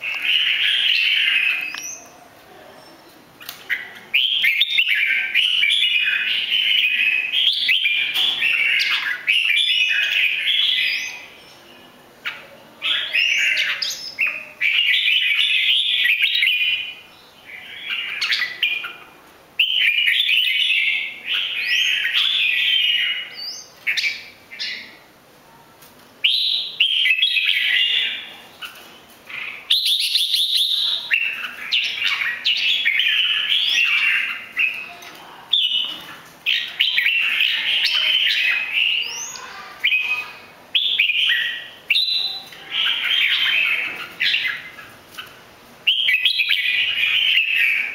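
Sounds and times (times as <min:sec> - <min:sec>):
bulbul chattering song: 0:26.2 - 0:47.9.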